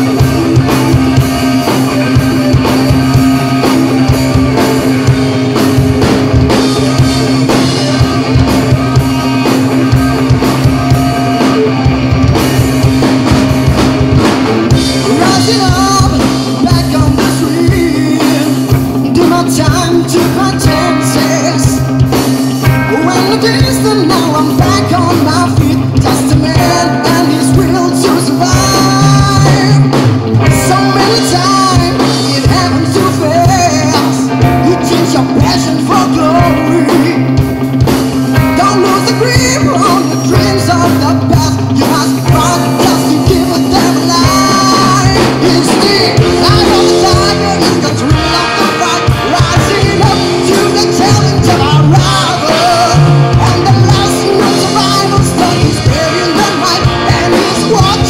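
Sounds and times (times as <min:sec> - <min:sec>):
live rock band playing: 0:00.0 - 0:58.0
man singing: 0:06.4 - 0:09.6, 0:14.7 - 0:37.5, 0:38.2 - 0:58.0.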